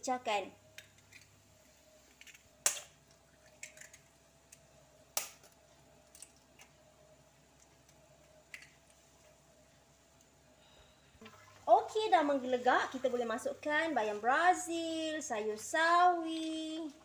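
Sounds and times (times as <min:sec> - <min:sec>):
spoon cracking eggshells: 0:00.8 - 0:01.4, 0:02.2 - 0:04.6, 0:05.2 - 0:06.8, 0:07.6 - 0:09.0.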